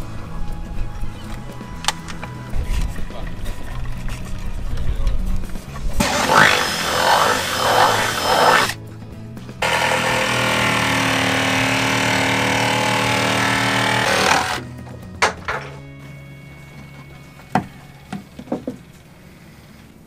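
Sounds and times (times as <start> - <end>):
drill boring into fibreglass: 6.0 - 8.8, 9.6 - 14.6
jigsaw cutting fibreglass: 6.0 - 8.8, 9.6 - 14.6.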